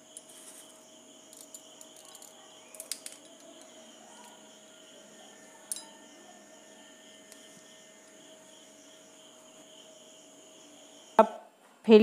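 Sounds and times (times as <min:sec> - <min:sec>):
faint high-pitched tone: 0:02.0 - 0:09.8.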